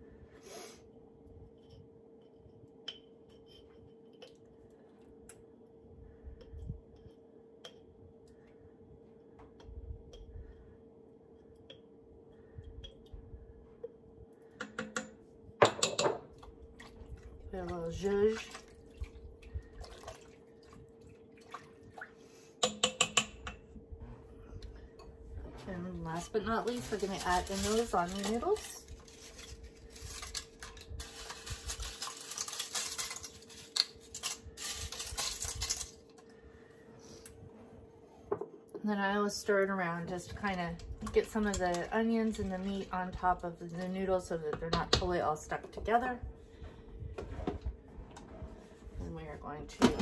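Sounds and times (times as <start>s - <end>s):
faint steady hum: 0.0s - 50.0s
spoon tapping glass jar: 22.6s - 23.6s
dry pasta pieces rattling: 26.6s - 36.2s.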